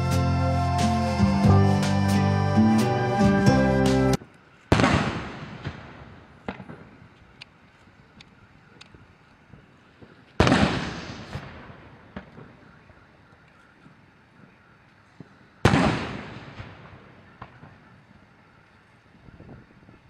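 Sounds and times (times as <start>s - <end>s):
gun salute booms echoing: 3.8s - 7.0s, 10.0s - 13.2s, 15.2s - 17.8s.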